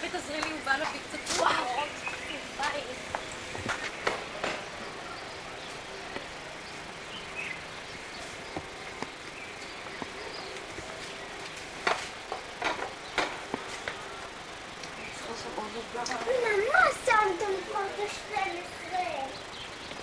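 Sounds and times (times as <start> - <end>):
steady background hiss: 0.0 - 20.0.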